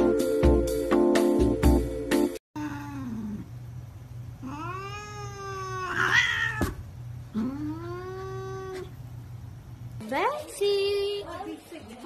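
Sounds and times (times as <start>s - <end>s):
cat yowling: 2.6s - 3.5s, 4.4s - 9.0s
cat hissing: 4.4s - 9.0s.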